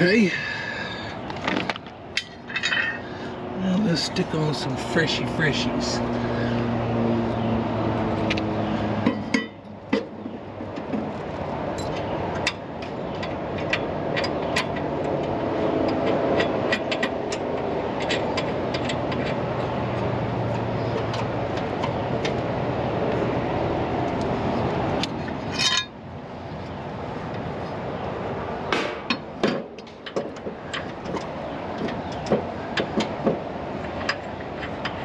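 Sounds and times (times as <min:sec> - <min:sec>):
steady mechanical hum: 0:00.0 - 0:35.0
metal tools clinking: 0:01.4 - 0:03.1, 0:25.4 - 0:26.0.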